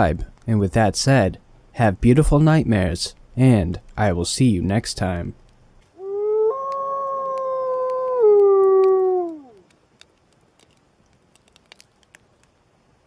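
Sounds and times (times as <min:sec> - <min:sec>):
faint clicks: 0:05.4 - 0:12.6
wolf howling: 0:06.0 - 0:09.6.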